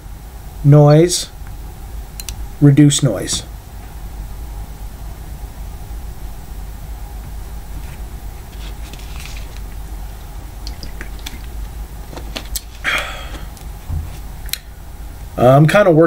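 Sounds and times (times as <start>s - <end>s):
low room hum: 0.0s - 16.0s.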